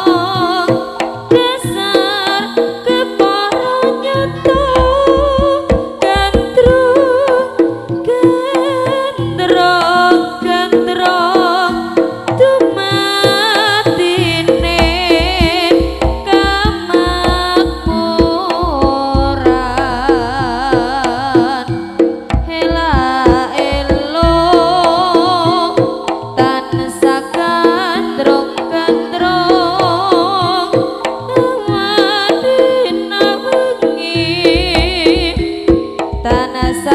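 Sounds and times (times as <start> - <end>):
hand drum strokes: 0.0 - 36.9
sustained high melody: 19.2 - 22.3.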